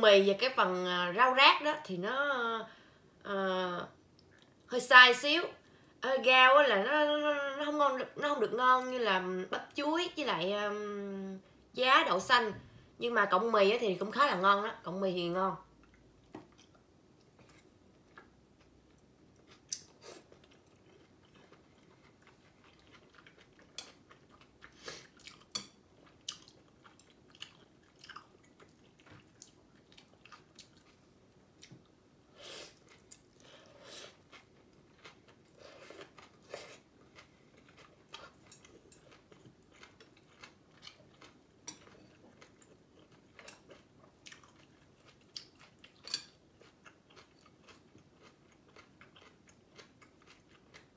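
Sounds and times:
chewing noodle soup: 0:15.8 - 0:31.8, 0:32.6 - 0:50.9.

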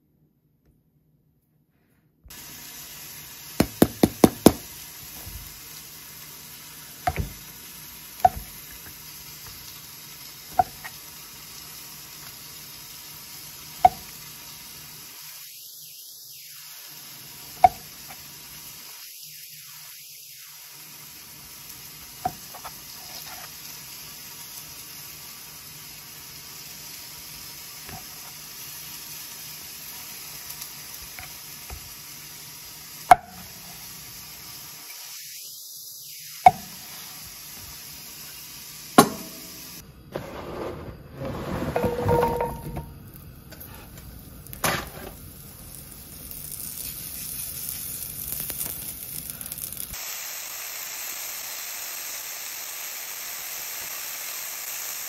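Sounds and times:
faint hiss: 0:02.3 - 0:40.4, 0:42.1 - 0:55.0
knife knocking on cutting board: 0:07.1 - 0:07.4.

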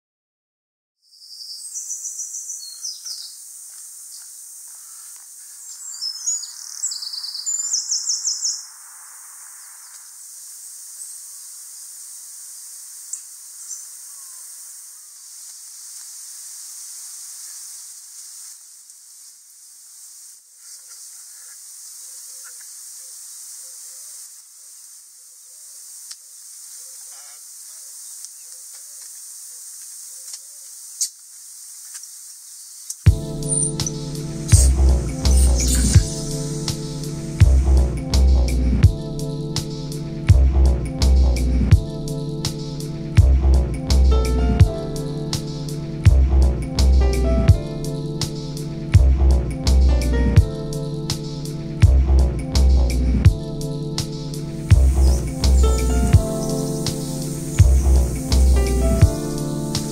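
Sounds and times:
songbirds trilling: 0:01.1 - 0:11.5, 0:13.1 - 0:15.4, 0:20.6 - 0:24.3, 0:31.9 - 0:52.6, 0:53.3 - 0:59.9
steady high-pitched hiss: 0:01.1 - 0:59.9.

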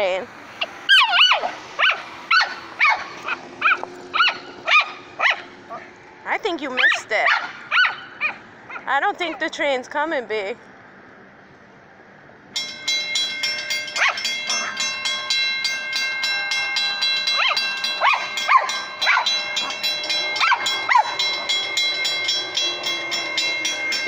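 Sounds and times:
railroad crossing bell ringing: 0:00.0 - 0:10.5, 0:12.5 - 0:24.0
small dog whining: 0:00.9 - 0:05.9.

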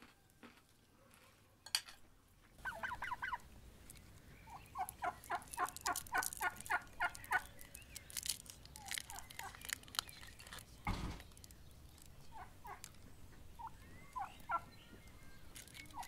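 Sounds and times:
fowl calling: 0:02.6 - 0:03.4.

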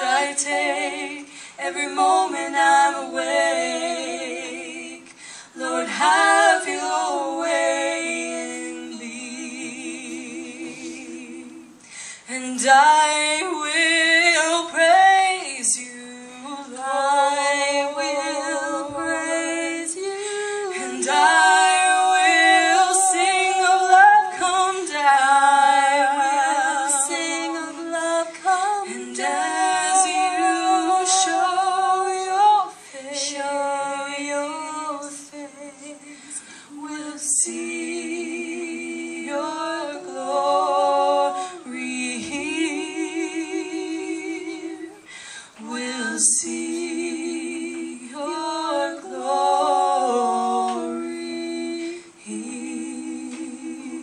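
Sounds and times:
women singing a cappella: 0:00.0 - 0:54.0.

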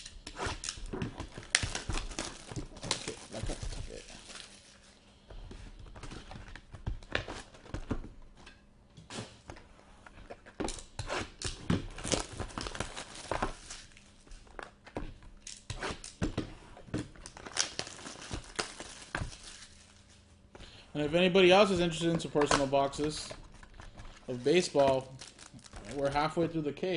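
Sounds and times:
plastic wrapper crinkling and tearing: 0:00.0 - 0:05.0, 0:11.9 - 0:14.4, 0:17.2 - 0:20.2, 0:21.5 - 0:26.4.

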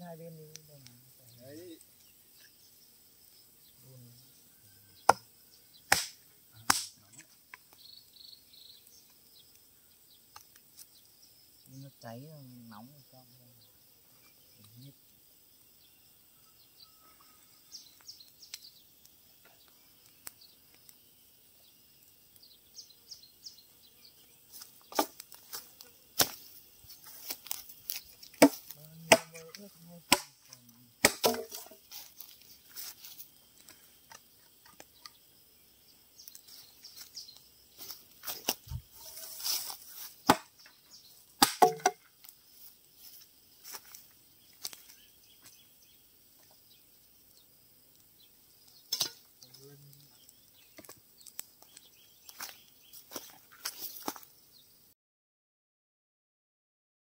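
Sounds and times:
faint insect chirping: 0:00.0 - 0:55.0
bamboo cracks and knocks: 0:05.0 - 0:07.8, 0:24.6 - 0:26.4, 0:27.0 - 0:35.2, 0:37.8 - 0:42.4, 0:44.6 - 0:45.5, 0:48.8 - 0:50.0, 0:50.7 - 0:54.3.

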